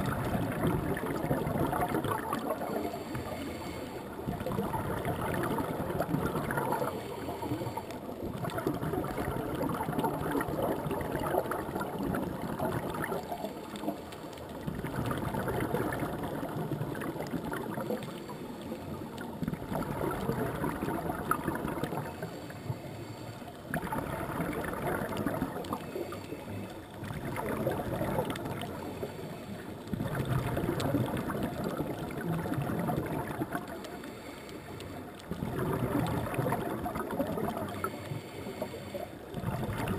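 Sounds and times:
exhaled bubbles gurgling: 0.0s - 39.9s
regulator breathing underwater: 2.6s - 4.4s, 6.4s - 8.2s, 22.0s - 24.3s, 25.6s - 26.9s, 28.5s - 30.0s, 33.8s - 35.7s, 37.6s - 39.6s.

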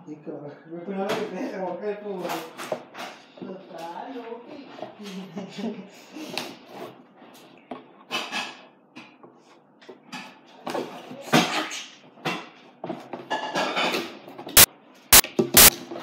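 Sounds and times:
sharp loud clicks: 14.6s - 15.7s.

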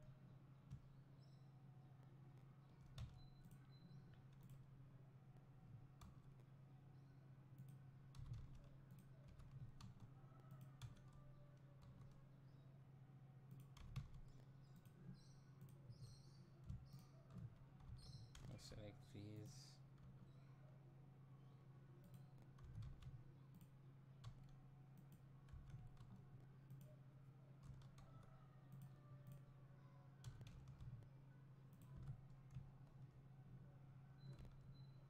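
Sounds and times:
keyboard and mouse clicks: 2.8s - 4.7s, 7.5s - 11.2s, 13.5s - 18.6s, 22.0s - 27.0s, 27.6s - 29.4s, 30.2s - 33.2s, 34.2s - 35.0s.

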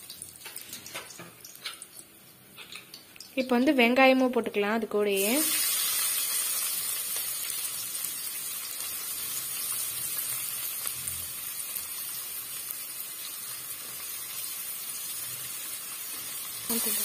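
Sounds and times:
onions sizzling in oil: 5.0s - 17.0s.

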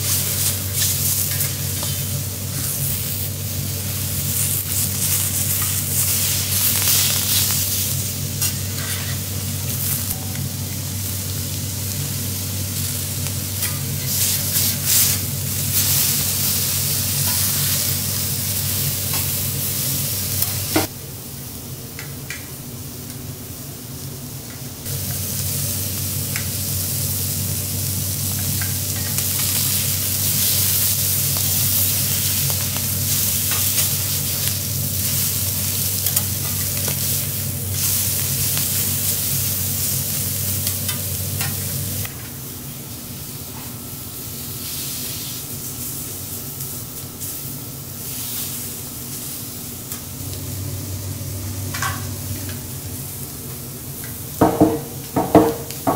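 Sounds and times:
seafood sizzling on griddle: 0.0s - 20.9s, 24.8s - 50.3s, 50.9s - 55.9s
steady low hum: 0.0s - 55.9s
spatula scraping metal griddle: 8.4s - 9.2s.

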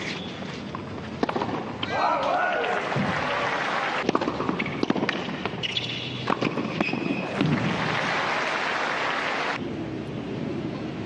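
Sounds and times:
tennis ball bounces: 0.7s - 1.9s, 4.0s - 7.7s
crowd applause: 2.7s - 4.0s, 7.5s - 9.6s.

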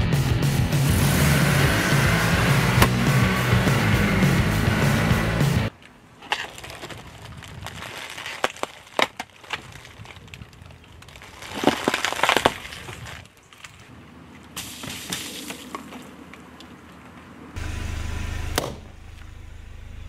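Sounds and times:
box and biscuits crunching under tyre: 5.7s - 13.9s.

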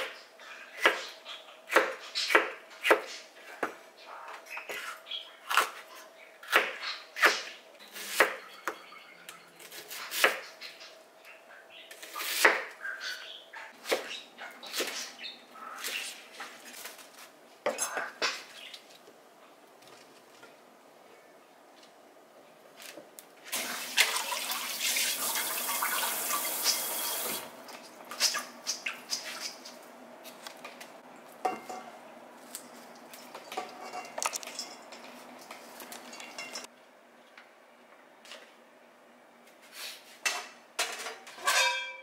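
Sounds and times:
kitchen tap running: 23.5s - 27.5s
metal colander clattering: 40.8s - 42.0s.

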